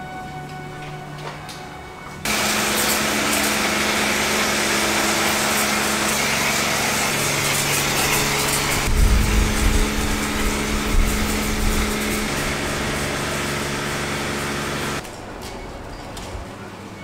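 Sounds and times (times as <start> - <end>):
pressure washer motor humming: 2.2 - 15.0
pressure washer spray hissing: 2.3 - 15.0
low rumble: 8.9 - 11.9.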